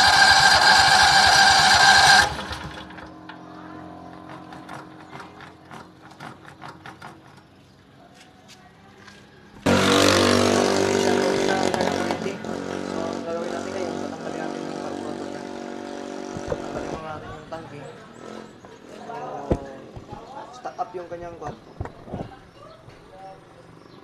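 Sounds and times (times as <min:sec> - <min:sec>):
generator starter cranking: 0:00.0 - 0:07.7.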